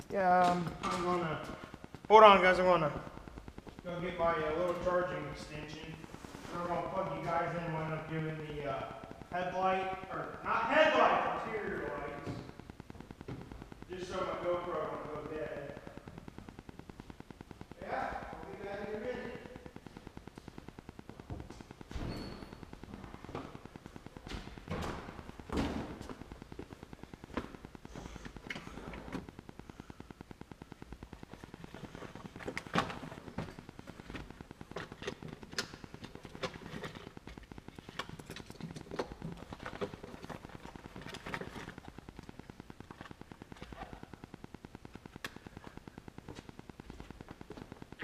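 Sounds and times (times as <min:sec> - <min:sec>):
fast machine ticking: 0:22.5 - 0:48.0.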